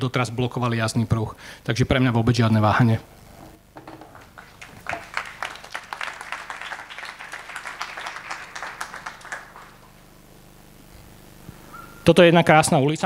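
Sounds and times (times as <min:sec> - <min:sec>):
audience clapping: 0:03.9 - 0:10.2.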